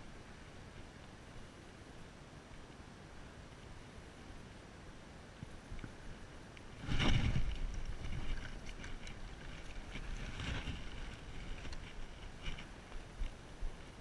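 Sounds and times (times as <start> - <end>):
clothing rustling against camera: 6.8 - 13.4.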